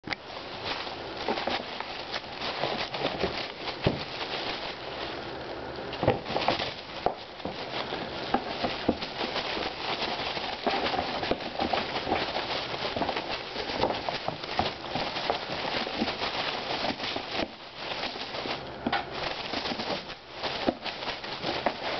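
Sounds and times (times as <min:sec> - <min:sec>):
wrapping paper rustling: 0:00.0 - 0:21.9
cardboard box knocks and scrapes: 0:06.0 - 0:17.6.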